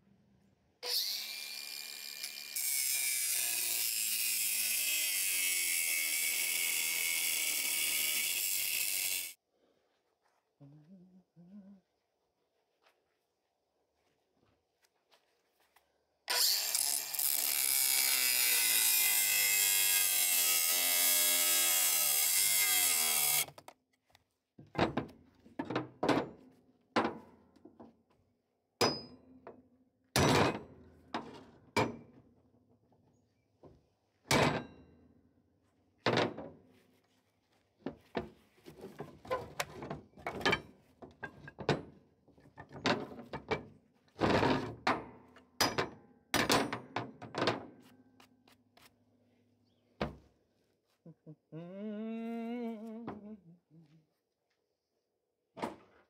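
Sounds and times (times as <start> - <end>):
angle grinder cutting steel: 0.8 - 9.4, 16.3 - 23.6.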